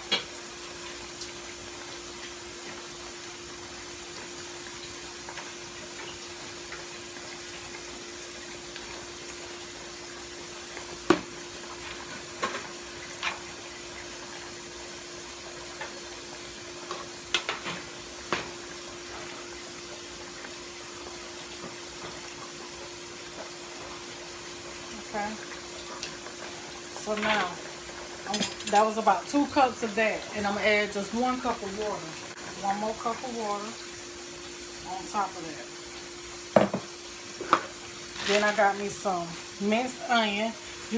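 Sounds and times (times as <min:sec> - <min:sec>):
broth bubbling in a skillet: 0:00.0 - 0:40.9
metal tongs clicking on pans: 0:28.3 - 0:29.0.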